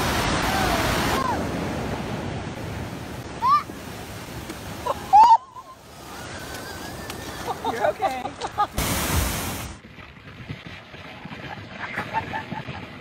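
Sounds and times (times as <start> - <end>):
waves breaking on a beach: 0.0 - 9.8
rushing water: 0.0 - 12.5.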